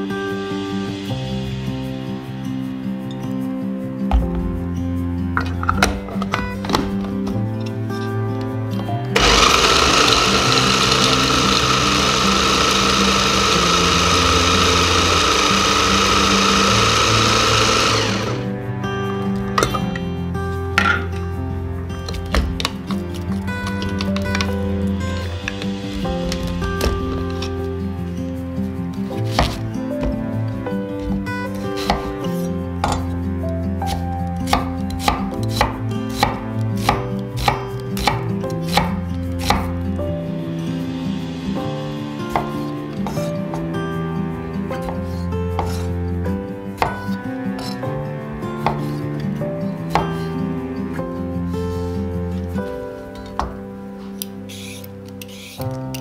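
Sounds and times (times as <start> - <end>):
food processor whirring: 9.2 - 18.5
knife striking wooden board: 33.9 - 39.7.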